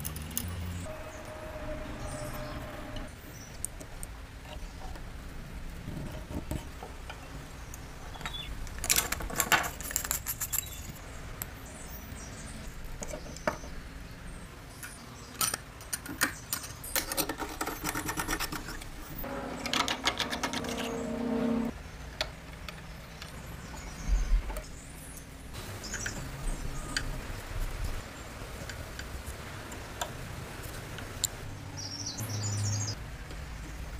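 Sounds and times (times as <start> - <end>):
short low hum: 19.2 - 21.7.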